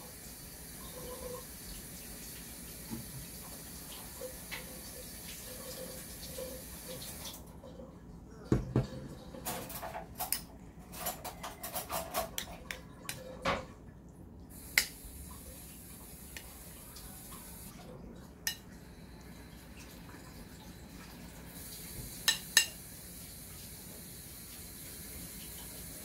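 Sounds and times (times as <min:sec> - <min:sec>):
dishes and utensils clinking: 0:08.8 - 0:13.7
steady hiss: 0:14.5 - 0:17.8, 0:21.4 - 0:26.0.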